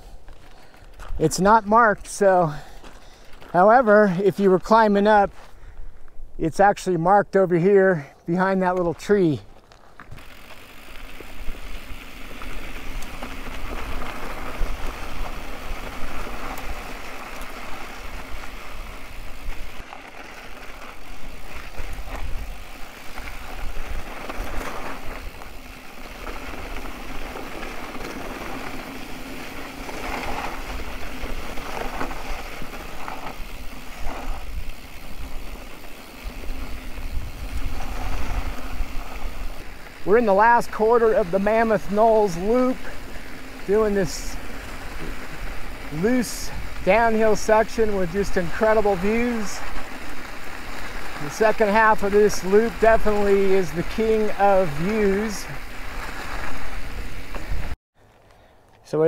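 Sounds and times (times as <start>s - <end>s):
bike rattling over bumps: 0.0s - 5.8s, 8.6s - 58.2s
tyres crunching over gravel: 0.0s - 59.0s
wind rumble on microphone: 36.2s - 39.8s.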